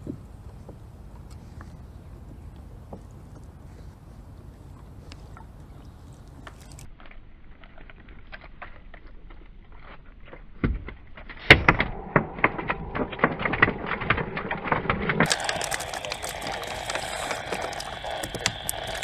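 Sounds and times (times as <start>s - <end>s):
steady hiss: 12.0s - 19.0s.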